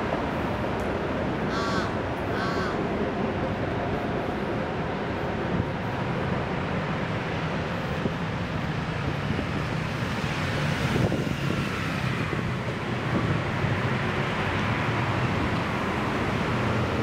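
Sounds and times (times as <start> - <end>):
city road traffic: 0.0 - 17.0
vehicle passing loudly: 9.2 - 17.0.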